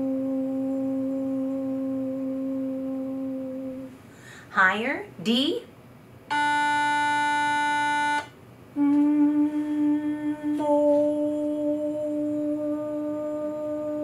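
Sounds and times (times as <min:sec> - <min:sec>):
woman humming: 0:00.0 - 0:04.0, 0:08.8 - 0:14.0
woman singing sustained oh: 0:00.0 - 0:04.0, 0:08.8 - 0:14.0
pitch pipe tone: 0:06.3 - 0:08.3.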